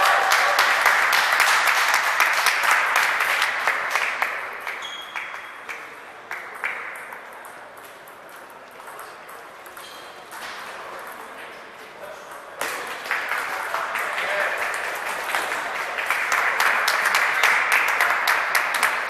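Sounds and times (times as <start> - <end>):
applause: 0.0 - 7.0, 12.8 - 19.0
table tennis balls hitting paddles: 4.2 - 19.0.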